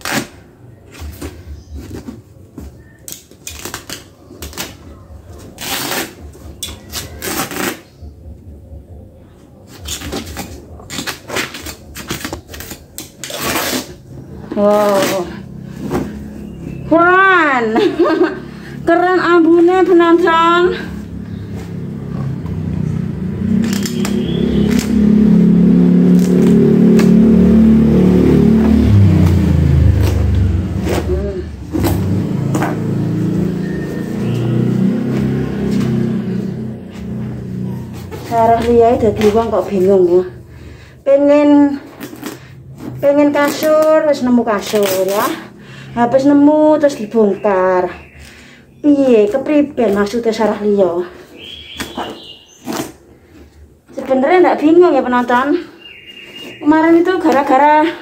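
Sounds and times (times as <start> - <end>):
cloth tearing: 5.4 - 7.9, 9.8 - 14.1, 23.6 - 25.0, 51.8 - 53.0
motor engine running: 14.1 - 40.9.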